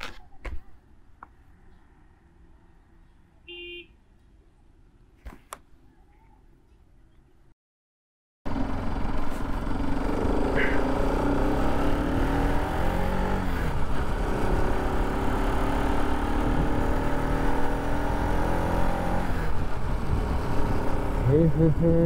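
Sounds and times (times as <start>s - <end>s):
motorcycle engine running: 8.5s - 17.6s
wind rush on camera: 19.4s - 21.1s.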